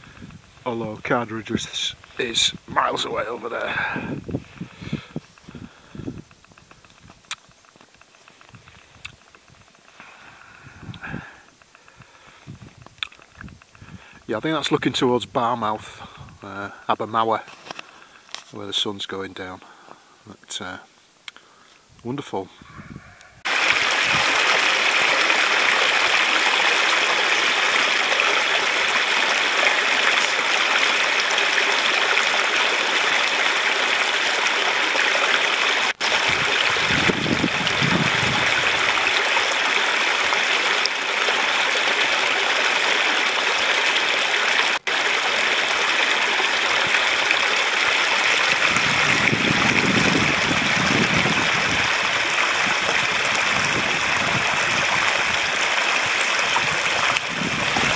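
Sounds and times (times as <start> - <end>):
stream rushing over stones: 0.0 - 6.2, 23.4 - 57.9.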